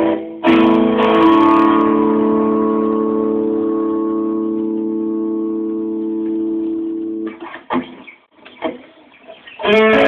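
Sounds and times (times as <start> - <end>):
electric guitar chord ringing: 0.0 - 7.3
choppy guitar strokes: 0.0 - 10.0.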